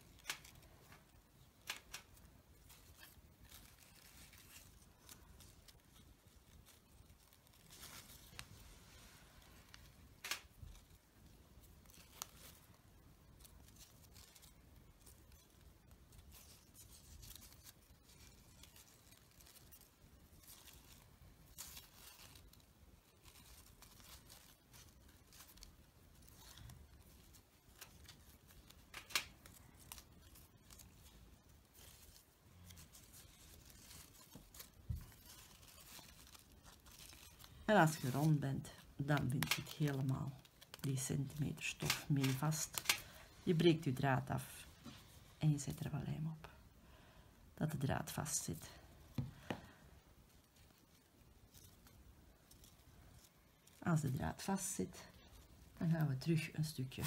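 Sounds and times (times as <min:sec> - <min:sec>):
faint fabric rustling: 0:00.0 - 0:57.0.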